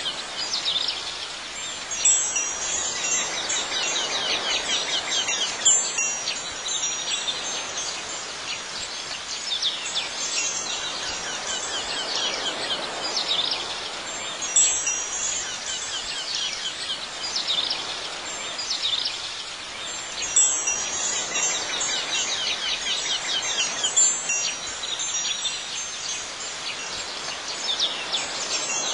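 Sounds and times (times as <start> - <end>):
wind chimes tinkling: 0.0 - 28.9.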